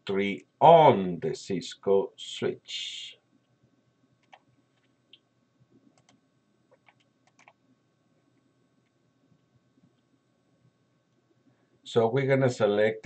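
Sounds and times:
faint mouse clicks: 0:04.2 - 0:05.3, 0:05.9 - 0:07.6.

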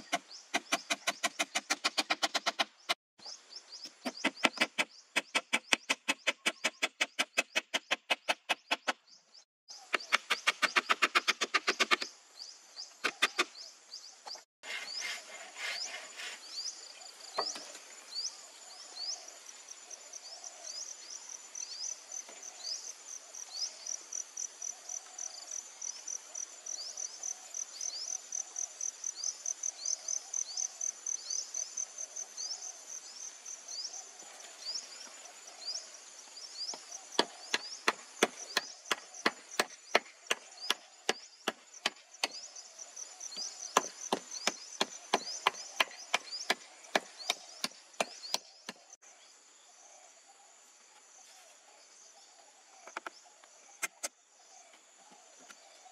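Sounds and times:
chopping strikes on wood: 0:36.7 - 0:42.5, 0:43.4 - 0:48.8.

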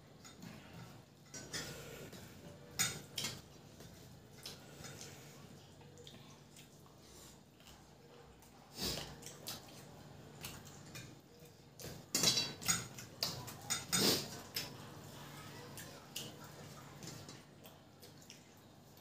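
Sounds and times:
fingers mixing rice on steel plates: 0:08.9 - 0:15.1.

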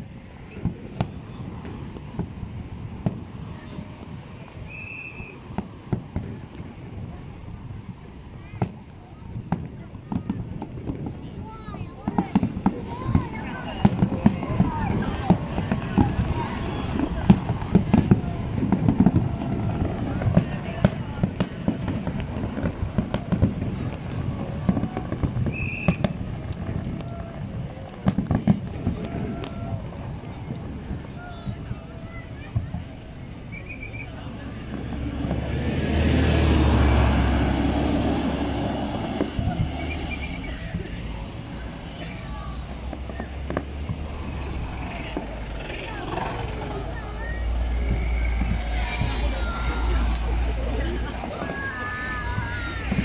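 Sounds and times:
fireworks bangs: 0:00.0 - 0:53.0
low rumble: 0:32.7 - 0:53.0.

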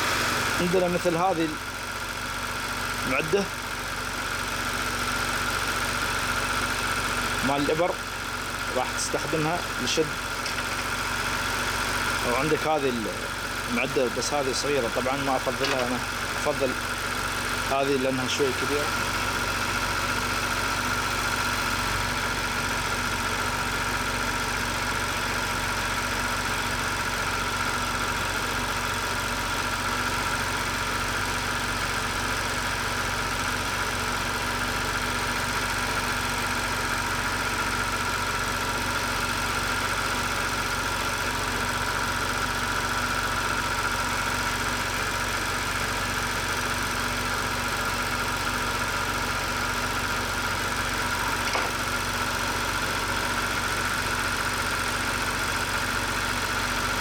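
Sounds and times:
car engine idling: 0:00.0 - 0:57.0
high engine whine: 0:07.4 - 0:23.6, 0:48.8 - 0:55.8.

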